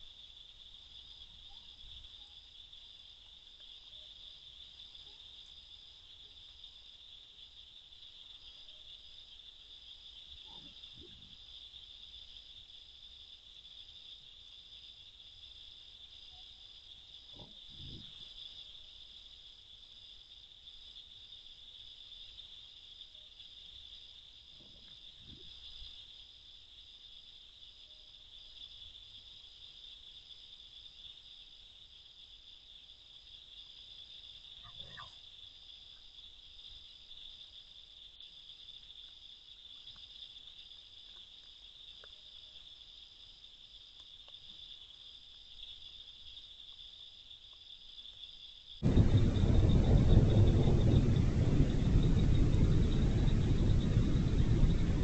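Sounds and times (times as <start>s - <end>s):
fast pulsing insect chirp: 0.0s - 55.0s
insect high trill: 44.6s - 55.0s.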